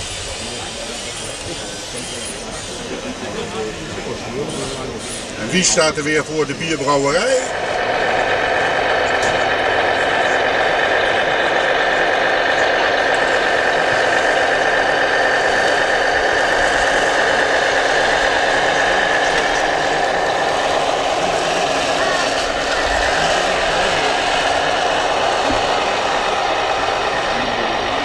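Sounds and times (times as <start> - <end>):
diesel engine sound from small speaker: 0.0 - 28.0.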